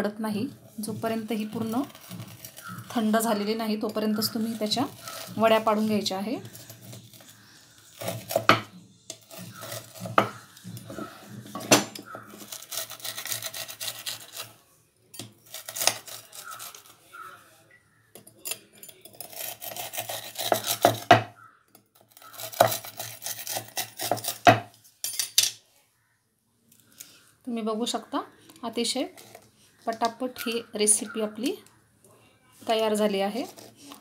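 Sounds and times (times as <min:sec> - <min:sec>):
scraper rasping through brittle: 0:00.7 - 0:03.4, 0:04.2 - 0:08.5, 0:09.1 - 0:11.4, 0:12.2 - 0:14.6, 0:15.4 - 0:17.4, 0:19.1 - 0:21.1, 0:22.0 - 0:24.4, 0:33.2 - 0:34.0.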